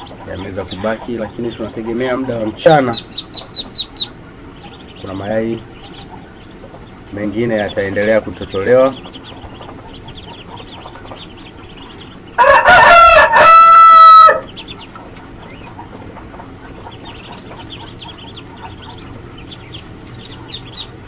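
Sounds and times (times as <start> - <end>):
ducklings peeping softly: 0.0 - 21.0
rooster crowing: 12.3 - 14.7.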